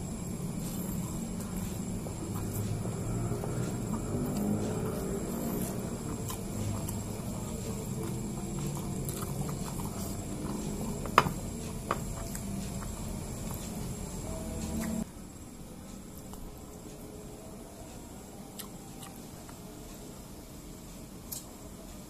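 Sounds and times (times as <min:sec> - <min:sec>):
man chewing: 0:00.0 - 0:15.1, 0:18.5 - 0:19.6
low background noise: 0:00.0 - 0:22.0.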